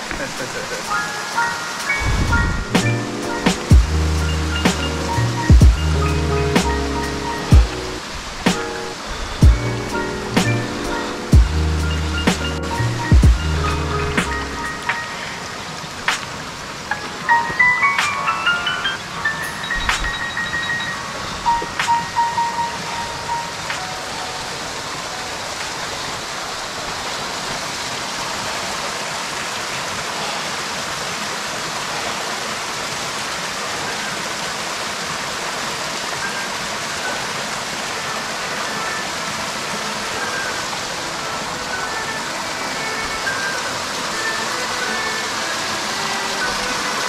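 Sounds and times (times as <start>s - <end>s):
waterfall rushing over rock: 0.0s - 47.0s
faint chiming music notes: 8.8s - 15.6s, 16.9s - 25.6s, 36.1s - 47.0s.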